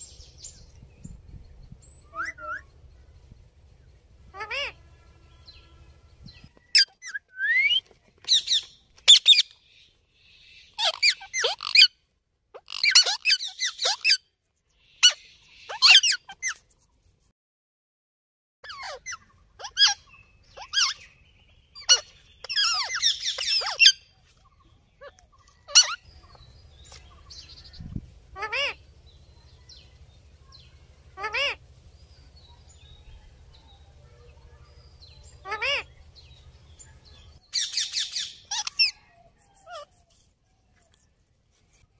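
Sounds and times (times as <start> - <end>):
parakeets squawking and chirping: 2.0 - 2.7, 4.2 - 4.8, 5.4 - 9.6, 10.2 - 14.2, 14.9 - 16.6, 18.6 - 29.9, 30.5 - 33.6, 34.4 - 39.0.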